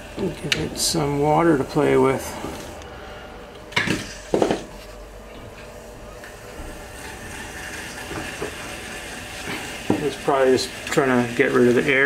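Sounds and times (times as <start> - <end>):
water pump humming: 0.0 - 12.0
pump knocks and rattle: 9.4 - 10.2.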